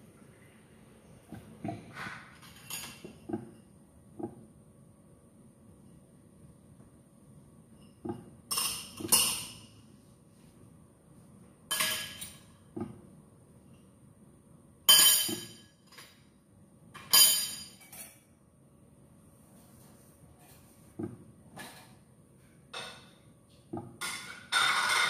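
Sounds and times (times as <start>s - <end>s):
dishes and metal pot clinking: 1.3s - 4.3s, 7.8s - 9.8s, 11.7s - 12.6s, 14.9s - 16.2s, 17.0s - 18.3s, 22.7s - 25.0s.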